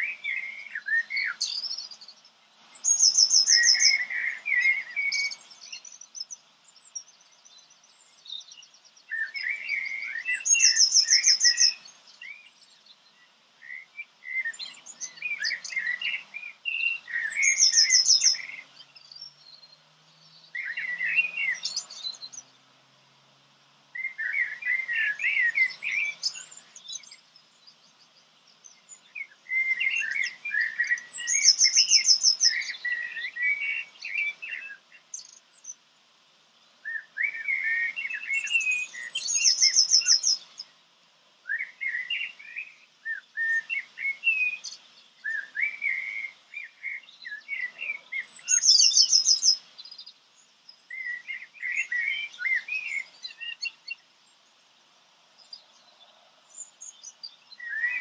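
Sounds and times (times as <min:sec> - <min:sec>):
songbird warbling and trilling: 0:00.0 - 0:22.7, 0:23.7 - 0:35.9, 0:36.7 - 0:40.8, 0:41.4 - 0:54.8, 0:55.4 - 0:58.0.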